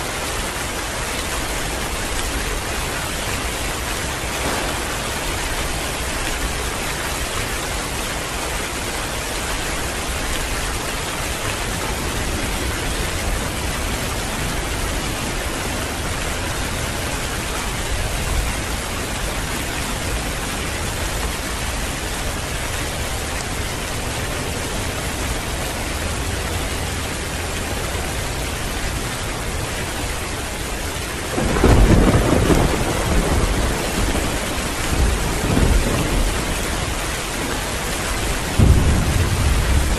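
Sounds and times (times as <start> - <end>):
heavy rain pouring: 0.0 - 39.9
thunder rumbling: 3.7 - 8.2, 31.3 - 39.9.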